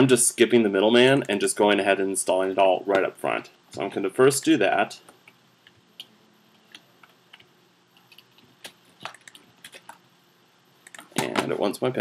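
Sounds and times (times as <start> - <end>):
faint low hum: 0.0 - 12.0
computer keys clicking: 5.2 - 10.0, 10.8 - 11.2.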